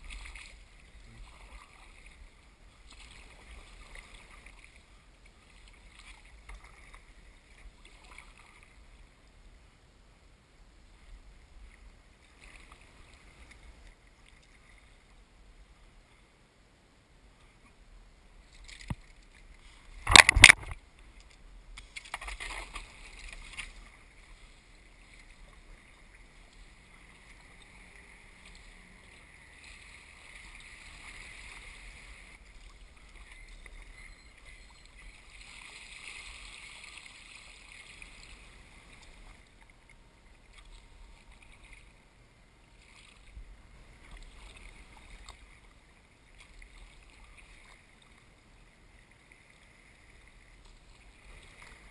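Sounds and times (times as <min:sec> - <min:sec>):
paddle splashing through water: 0:00.0 - 0:08.8, 0:18.6 - 0:20.8, 0:21.8 - 0:39.7.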